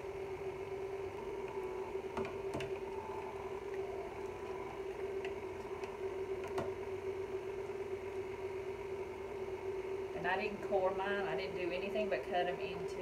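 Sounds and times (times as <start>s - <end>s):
stand mixer motor humming: 0.0s - 10.1s.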